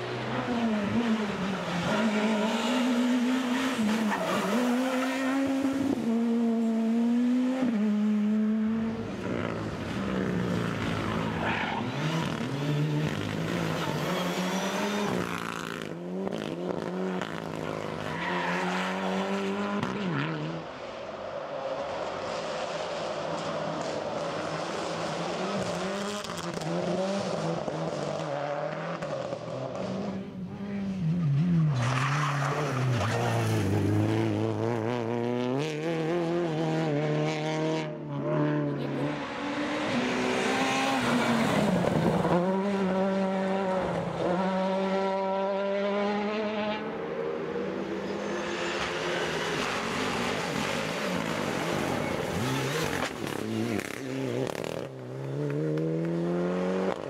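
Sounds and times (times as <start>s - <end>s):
rally car engines revving: 0.0s - 21.0s, 21.8s - 57.0s.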